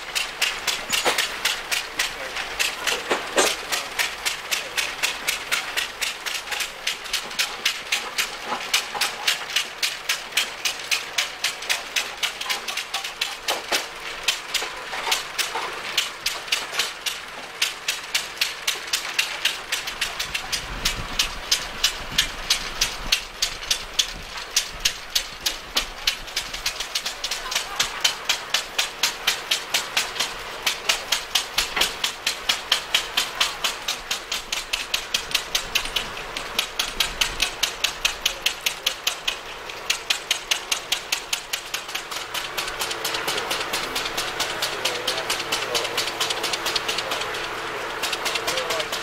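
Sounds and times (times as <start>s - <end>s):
engine mechanical knocking: 0.0s - 49.0s.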